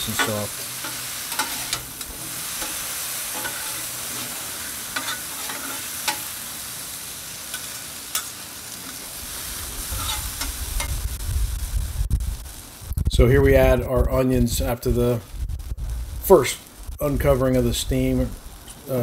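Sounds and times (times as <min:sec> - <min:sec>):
metal spatulas scraping on steel: 0:00.0 - 0:06.3, 0:09.9 - 0:10.5
potatoes sizzling in oil: 0:00.0 - 0:13.0
low rumble: 0:09.2 - 0:18.6.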